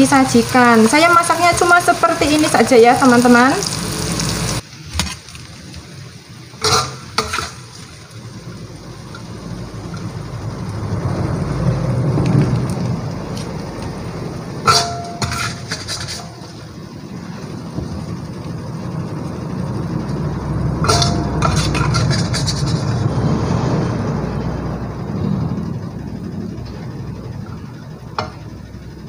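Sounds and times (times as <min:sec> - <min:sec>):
food sizzling in a wok: 0:00.0 - 0:29.0
metal utensils clinking on dishes: 0:06.6 - 0:07.6, 0:14.7 - 0:16.4, 0:20.8 - 0:23.0
low rumbling: 0:08.1 - 0:29.0.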